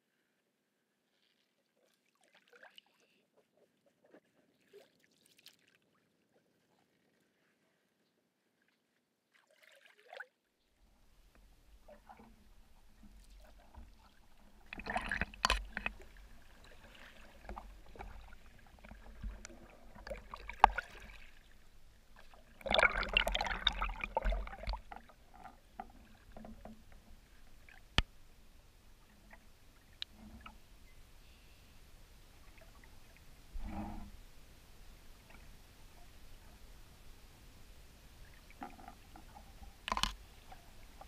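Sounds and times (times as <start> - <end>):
paddle splashing in water: 11.8 - 28.0
water dripping: 17.4 - 21.2, 22.4 - 25.9.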